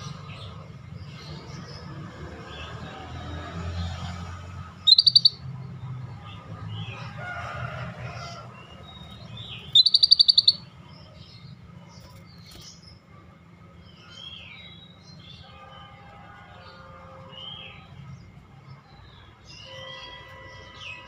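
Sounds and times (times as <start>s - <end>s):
bird rapid high repeated notes: 4.9s - 5.4s, 9.7s - 10.6s
faint bird chirps: 4.9s - 5.4s, 9.6s - 10.6s.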